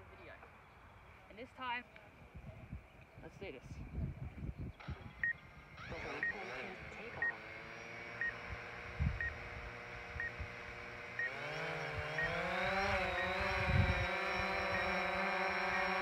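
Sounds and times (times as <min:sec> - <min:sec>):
drone propellers whirring: 0:04.6 - 0:16.0.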